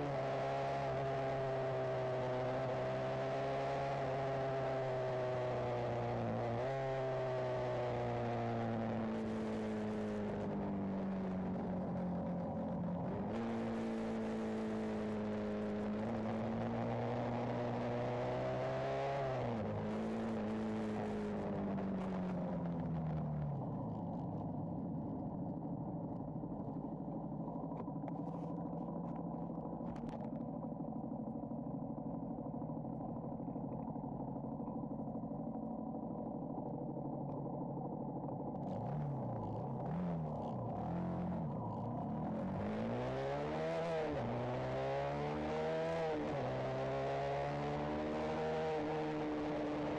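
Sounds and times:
motorcycle engine revving: 0:37.0 - 0:49.9.

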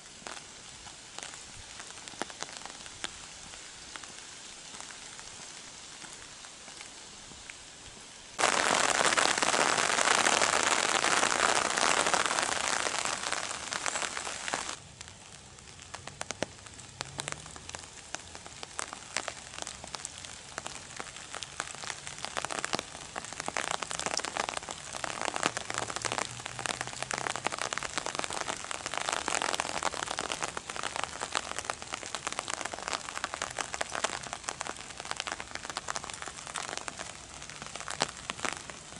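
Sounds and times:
raindrops tapping on umbrella: 0:00.0 - 0:07.5, 0:08.4 - 0:38.9
rain falling on an umbrella: 0:00.0 - 0:38.9.

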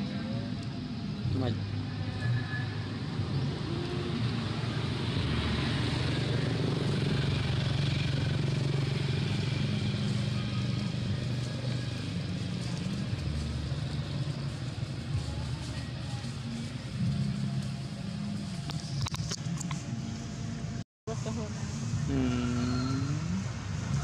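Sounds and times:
motor engine running: 0:03.2 - 0:20.7.

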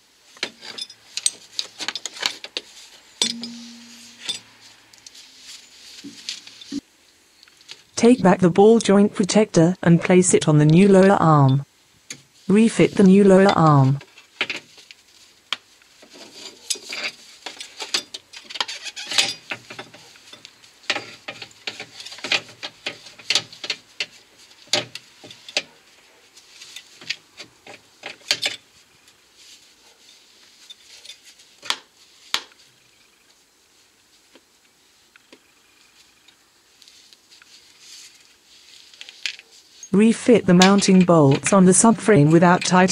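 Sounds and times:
metal clinks and knocks: 0:00.4 - 0:02.4, 0:03.2 - 0:04.6, 0:16.2 - 0:25.7.

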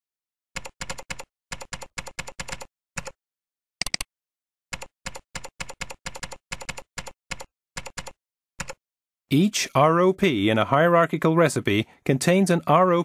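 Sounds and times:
typing on computer keyboard: 0:00.6 - 0:03.2, 0:04.8 - 0:08.8.

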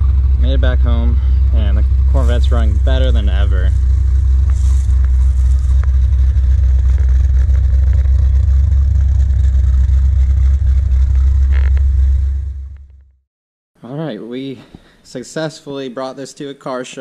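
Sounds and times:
car engine idling: 0:00.0 - 0:13.2.

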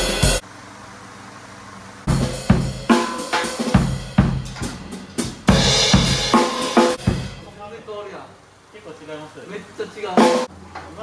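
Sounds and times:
drum kit hits: 0:00.0 - 0:00.4, 0:02.1 - 0:07.6, 0:10.2 - 0:10.5
cymbal crash: 0:02.1 - 0:07.5.

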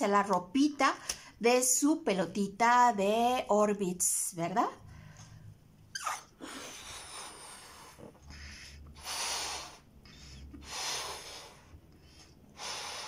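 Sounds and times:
person blowing up balloon: 0:05.9 - 0:11.8.

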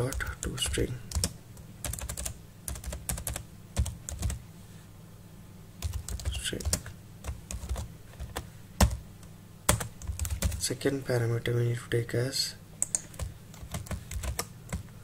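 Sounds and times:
typing on computer keyboard: 0:01.1 - 0:04.4, 0:05.8 - 0:09.0, 0:09.7 - 0:10.6, 0:12.8 - 0:14.9.

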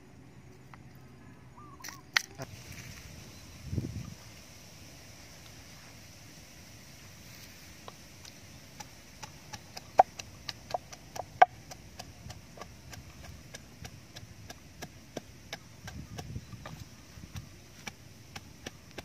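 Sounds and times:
pestle pounding in mortar: 0:08.8 - 0:19.0.

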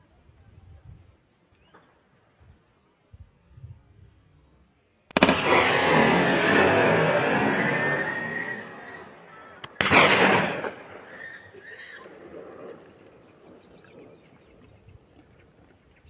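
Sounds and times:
gunshot with short echo: 0:05.1 - 0:11.2.

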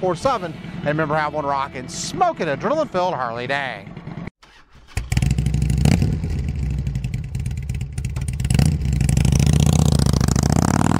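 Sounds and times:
motorcycle engine running: 0:05.1 - 0:10.9.

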